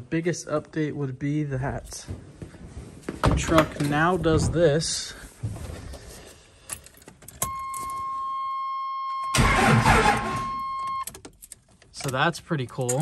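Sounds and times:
high warning tone: 7.4s - 11.1s
diesel engine cranking: 9.3s - 13.0s.

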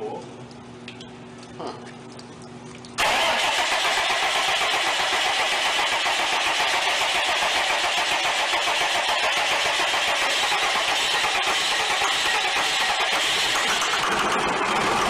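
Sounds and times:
diesel engine starting and running: 3.0s - 15.0s.

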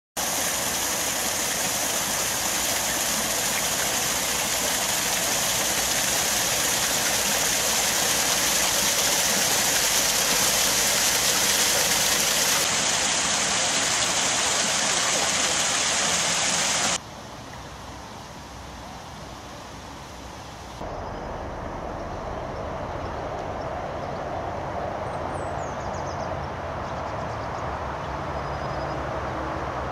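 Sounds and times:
water gushing and splashing: 0.2s - 17.0s
outdoor background: 0.2s - 29.9s.

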